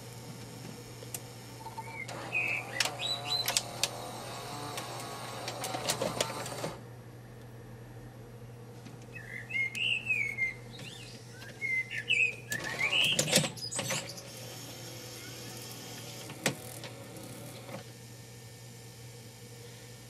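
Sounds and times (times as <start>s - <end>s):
tape mechanism running: 0.0s - 6.8s, 12.5s - 18.0s
mechanical clicks and clatter: 4.7s - 6.8s
squeaky gliding chirps: 9.2s - 14.5s.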